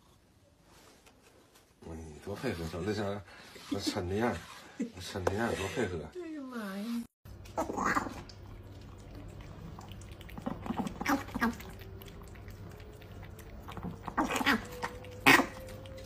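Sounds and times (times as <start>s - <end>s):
animals lapping from a bowl: 7.3s - 16.0s.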